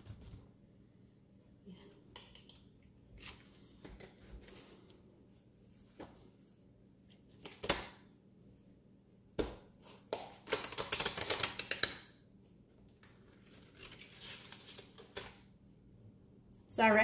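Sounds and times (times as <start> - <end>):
paper crinkling: 12.9 - 15.4
paper rustling: 12.9 - 15.5.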